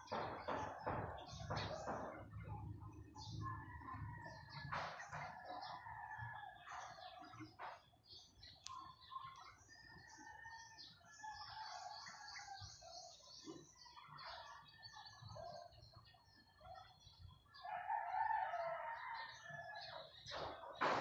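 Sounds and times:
birds calling and chirping: 0.0s - 21.0s
rooster crowing: 17.6s - 19.9s.

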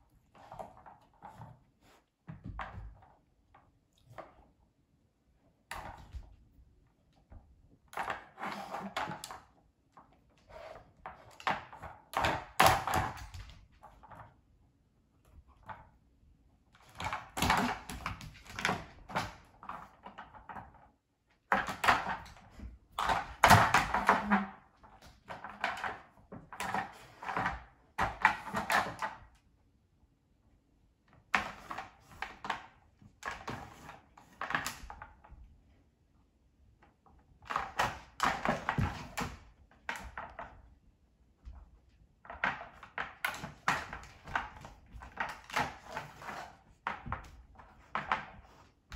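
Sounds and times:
plastic toy clattering on wooden floor: 37.4s - 40.6s.

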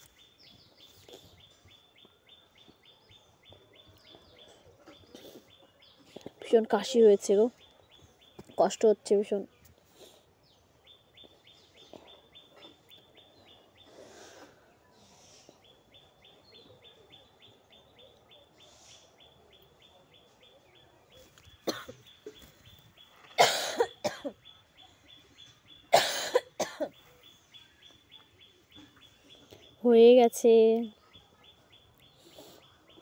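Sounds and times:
woman coughing hard: 21.6s - 22.0s, 23.4s - 24.4s, 25.9s - 27.0s.

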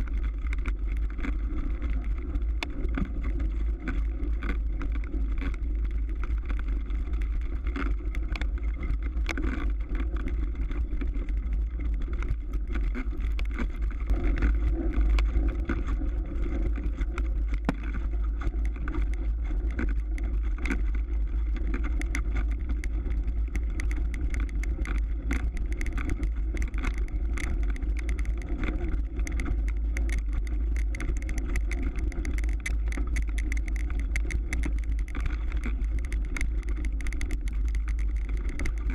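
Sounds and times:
tires crunching on snow: 0.0s - 38.9s
wind and ride vibration rumble: 0.0s - 38.9s.

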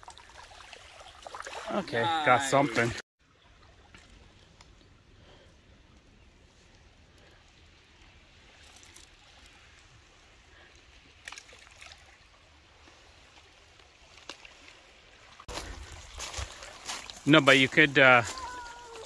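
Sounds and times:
water trickling: 0.0s - 5.0s.

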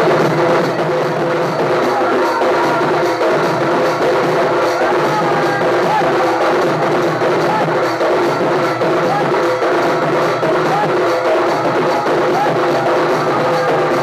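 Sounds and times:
drums beating fast rhythm: 0.0s - 14.0s.

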